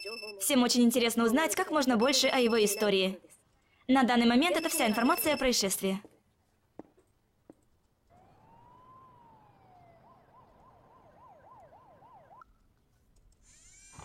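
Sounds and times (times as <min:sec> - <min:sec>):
faint police siren: 0:08.1 - 0:12.7.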